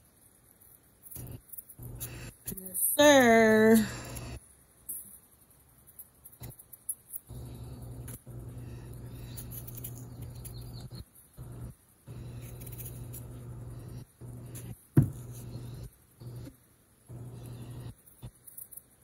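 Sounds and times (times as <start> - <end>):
steady low hum: 0.0 - 19.0
knife scraping potato skin: 8.9 - 11.1, 12.1 - 13.4
potato knocking on cutting board: 15.0 - 15.2.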